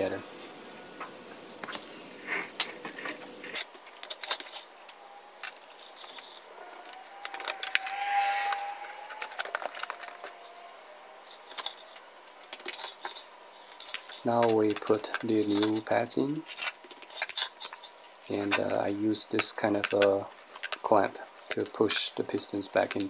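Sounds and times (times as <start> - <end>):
steady tone: 4.5 - 12.5.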